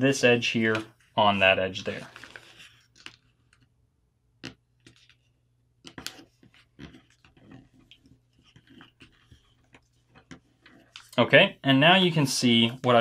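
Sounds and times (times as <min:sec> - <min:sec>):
paper being folded and creased: 0:00.6 - 0:03.6.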